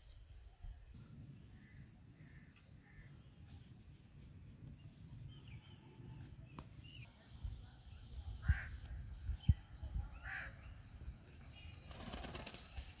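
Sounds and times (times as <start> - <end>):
small birds chirping: 0.0 - 13.0
pigeon wings flapping: 11.9 - 13.0.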